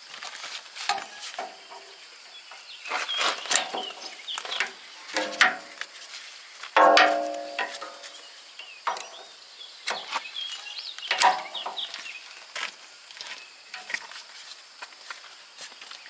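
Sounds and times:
birds chirping faintly: 0.6 - 16.0
metallic clank of hose coupler: 4.6 - 5.8, 6.8 - 8.2.

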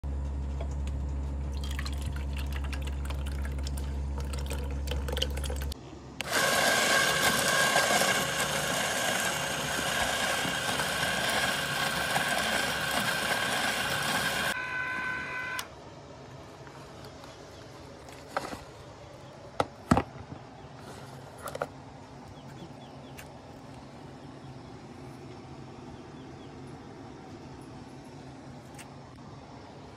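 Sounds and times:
low steady hum: 0.0 - 29.9
ice cream maker motor whine: 1.5 - 15.7
canister churning in ice: 1.6 - 14.6.

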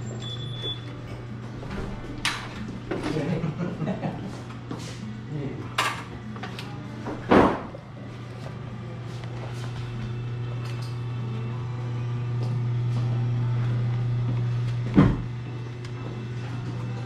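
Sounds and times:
steady low hum: 7.6 - 17.0.

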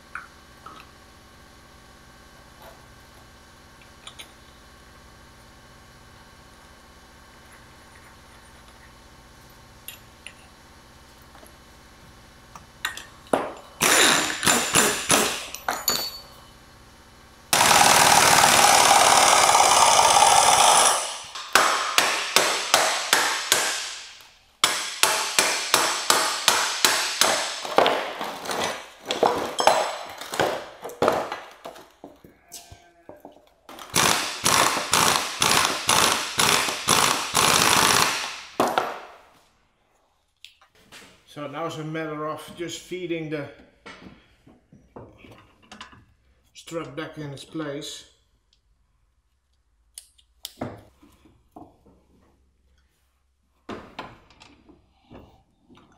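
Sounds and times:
impact wrench rattling: 12.9 - 16.3, 33.7 - 39.0.

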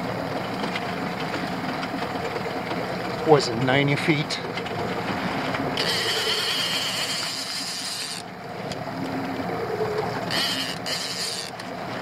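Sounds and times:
outboard motor running: 0.0 - 12.0
fishing reel whirring: 5.6 - 8.4, 9.1 - 11.8.

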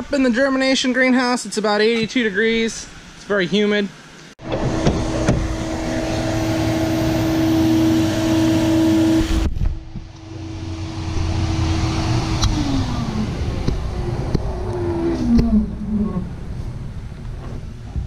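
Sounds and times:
seeder blower humming: 4.4 - 17.2.

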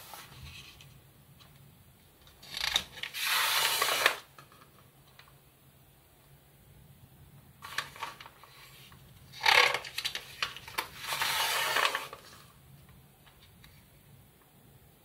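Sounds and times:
magazine page turning: 0.0 - 1.0, 7.6 - 12.5.

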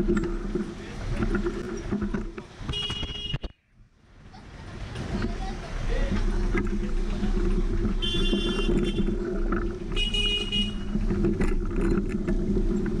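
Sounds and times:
vehicle noise: 0.0 - 13.0
horn toots: 2.7 - 3.5, 7.9 - 11.1.

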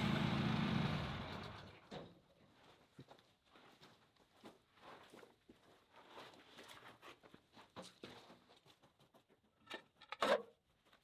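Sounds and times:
shuffling footsteps: 2.4 - 9.4.

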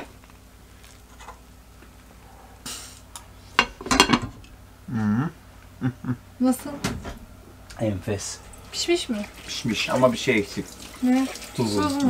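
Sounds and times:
short hiss: 2.6 - 3.1.

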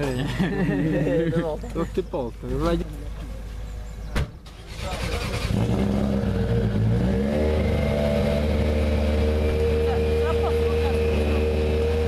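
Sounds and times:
car engine starting and idling: 4.0 - 12.0.

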